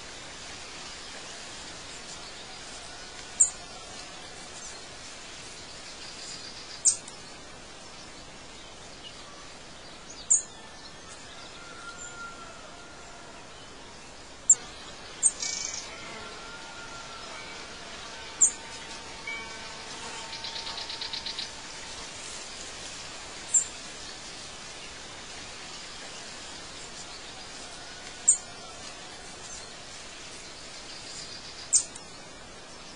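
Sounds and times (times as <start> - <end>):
steady background hiss: 0.0 - 32.9
bird trill: 15.2 - 15.9, 18.3 - 21.6.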